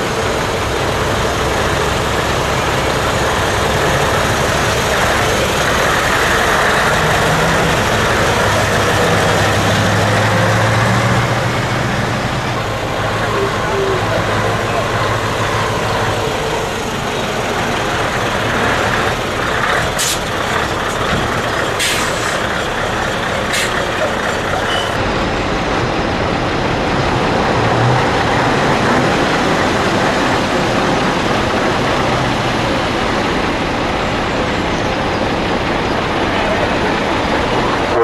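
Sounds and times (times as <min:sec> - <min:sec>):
truck engine at low revs: 0:00.0 - 0:38.0
air brake hisses: 0:21.8 - 0:22.4.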